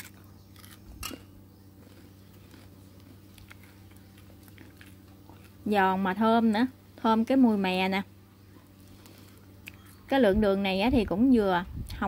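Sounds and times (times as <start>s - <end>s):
crunch of fried fritter: 0.0s - 5.6s, 8.6s - 10.0s
low steady hum: 0.0s - 12.0s.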